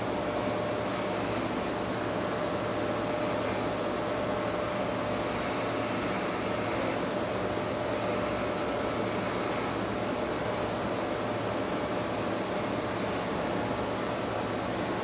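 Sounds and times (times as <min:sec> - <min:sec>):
electric hair clippers buzzing: 0:00.6 - 0:01.6, 0:03.0 - 0:03.8, 0:04.4 - 0:07.1, 0:07.8 - 0:09.8.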